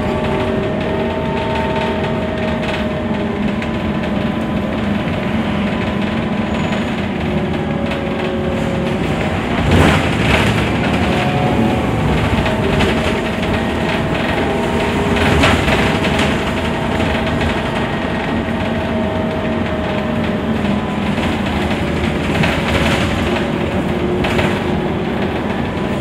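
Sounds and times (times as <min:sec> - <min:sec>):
bus engine and road noise: 0:00.0 - 0:26.0
bus jolting knocks: 0:00.0 - 0:26.0.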